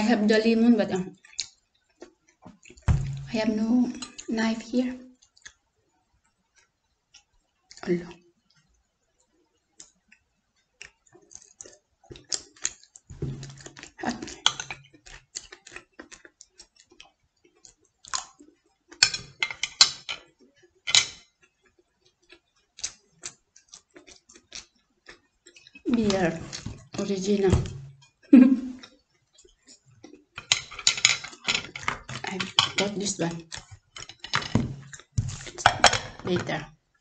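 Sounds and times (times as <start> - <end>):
chopsticks and spoon clicking on plates: 18.9 - 21.6, 30.1 - 36.4.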